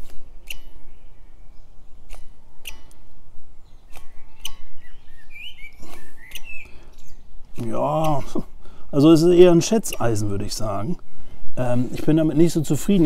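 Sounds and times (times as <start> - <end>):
bird chirping: 0.4 - 10.1.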